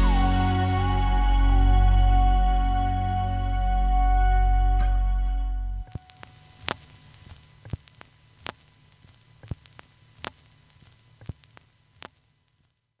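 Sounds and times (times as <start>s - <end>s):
vinyl record pops: 5.8s - 12.8s
vinyl record stylus noise: 5.8s - 13.0s.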